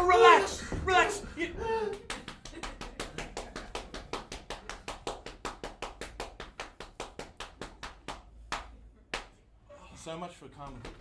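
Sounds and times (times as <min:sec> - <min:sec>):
rapid hand slapping: 0:01.8 - 0:09.4, 0:10.6 - 0:11.0.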